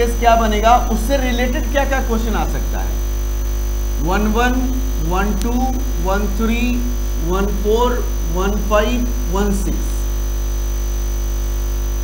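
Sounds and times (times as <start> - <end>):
man counting: 0.0 - 3.0, 4.0 - 10.1
faint high whine: 0.0 - 12.0
mains hum: 0.0 - 12.0.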